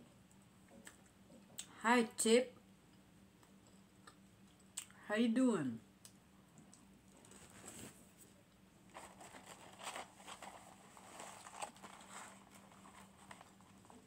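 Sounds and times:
paper carton crinkling: 0:08.9 - 0:14.0.

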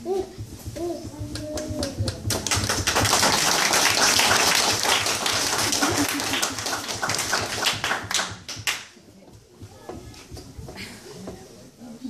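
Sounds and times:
audience applauding: 0:01.8 - 0:08.9.

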